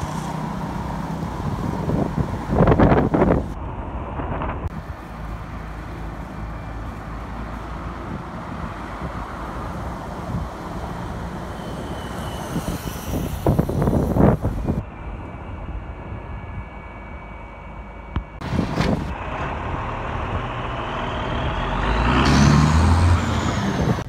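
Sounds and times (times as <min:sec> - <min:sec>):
street noise: 0:00.0 - 0:24.0
wind blowing on microphone: 0:01.0 - 0:05.0, 0:08.0 - 0:10.8, 0:12.3 - 0:14.9, 0:18.4 - 0:20.5, 0:23.1 - 0:24.0
motor vehicle passing: 0:19.2 - 0:24.0.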